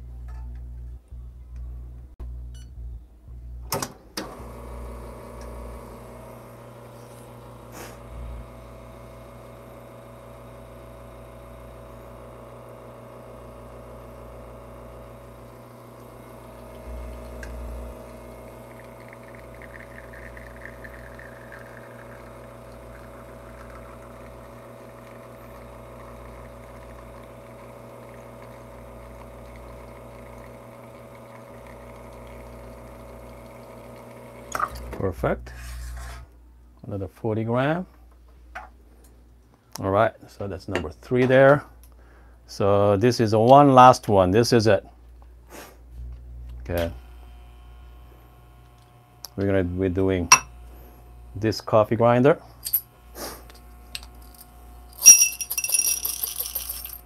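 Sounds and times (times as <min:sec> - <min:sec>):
espresso machine pump humming: 0:04.2 - 0:35.1, 0:46.5 - 0:57.0.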